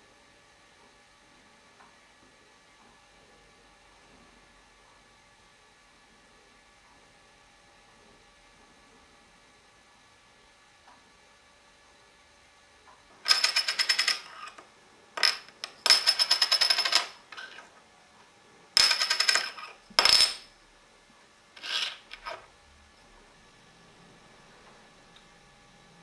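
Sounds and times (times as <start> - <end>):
small metal objects rattling: 13.3 - 14.6, 15.2 - 17.7, 18.8 - 20.5, 21.6 - 22.4.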